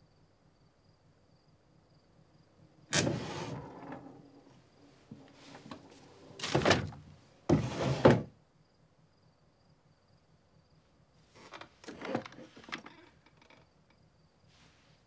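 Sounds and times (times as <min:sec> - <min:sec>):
drawer thunking shut: 0:02.9 - 0:08.3
wooden drawer sliding: 0:02.9 - 0:08.3, 0:11.4 - 0:12.9.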